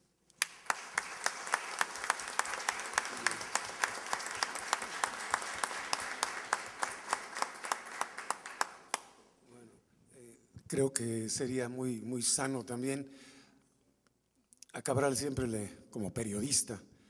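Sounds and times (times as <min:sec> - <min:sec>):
audience applauding: 0:00.4 - 0:09.2
nearby hands clapping sharply: 0:00.4 - 0:09.2.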